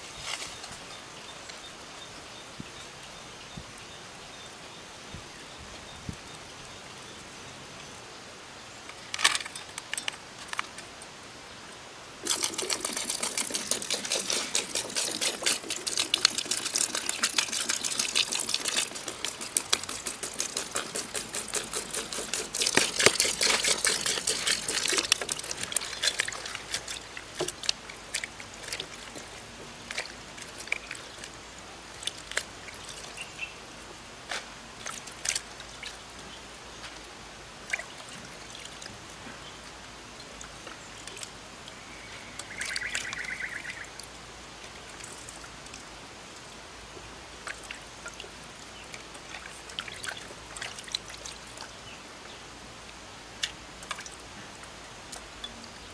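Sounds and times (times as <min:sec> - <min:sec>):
water splashing into steel bowl: 0:12.2 - 0:29.1
hands stirring in water: 0:12.2 - 0:31.3.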